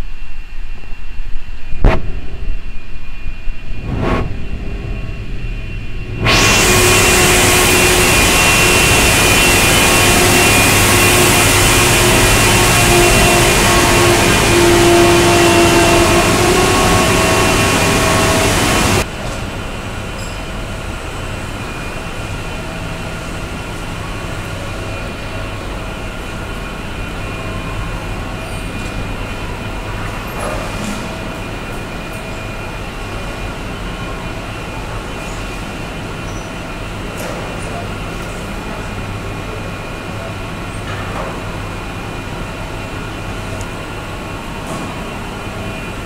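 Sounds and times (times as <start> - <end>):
steady hum with held tones: 0.0 - 30.3
woodworking machine hissing: 6.2 - 19.0.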